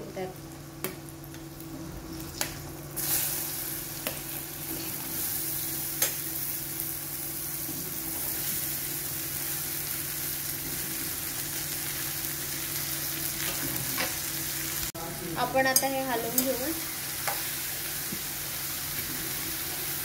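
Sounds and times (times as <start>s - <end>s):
vegetables sizzling in hot oil: 0.1s - 14.9s, 15.5s - 20.0s.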